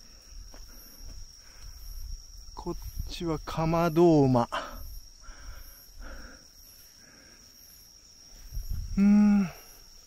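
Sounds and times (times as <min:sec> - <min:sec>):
insects trilling: 0:00.0 - 0:10.0
man humming: 0:08.9 - 0:09.9.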